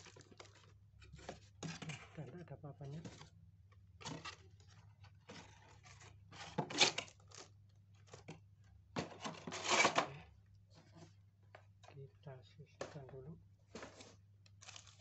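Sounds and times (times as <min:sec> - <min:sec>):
plastic wrapping crinkling: 0:00.0 - 0:01.3, 0:13.7 - 0:15.0.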